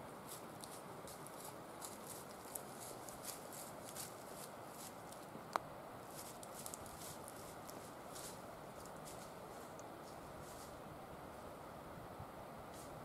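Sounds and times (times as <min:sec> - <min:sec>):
deer footsteps crunching leaves: 0:00.2 - 0:05.3, 0:06.0 - 0:10.8.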